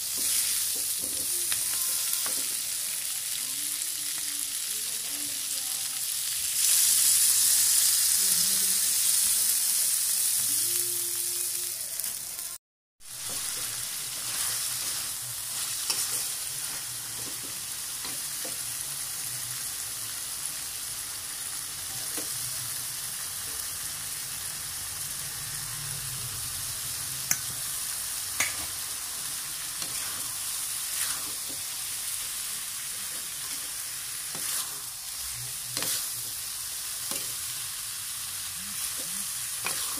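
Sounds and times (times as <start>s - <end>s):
food sizzling: 0.0s - 39.9s
metal spatula stirring: 13.2s - 17.5s, 29.8s - 31.7s, 33.0s - 36.2s, 38.8s - 39.9s.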